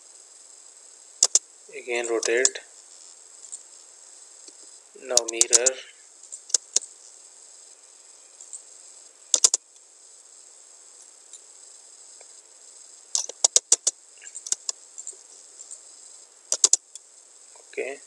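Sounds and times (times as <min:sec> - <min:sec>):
faint high hiss: 0:00.0 - 0:18.0
mouse clicks: 0:01.2 - 0:01.4, 0:05.1 - 0:06.9, 0:09.4 - 0:09.6, 0:13.2 - 0:15.8, 0:16.5 - 0:17.0
keyboard keystrokes: 0:05.2 - 0:05.8, 0:09.4 - 0:09.6, 0:16.5 - 0:16.8.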